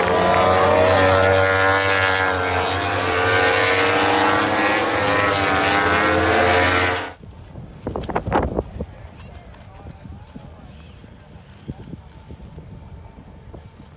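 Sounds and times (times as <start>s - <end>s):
racing motorcycle engines high revs: 0.0s - 7.2s.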